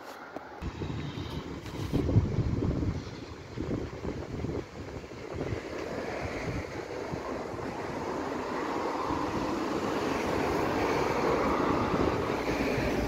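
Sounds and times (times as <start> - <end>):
vehicle rumble: 0.0 - 13.0.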